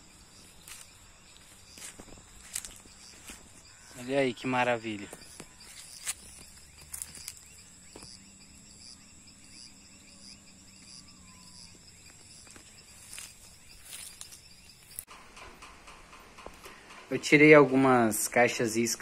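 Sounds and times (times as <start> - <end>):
crickets and insects trilling: 0.0 - 15.2.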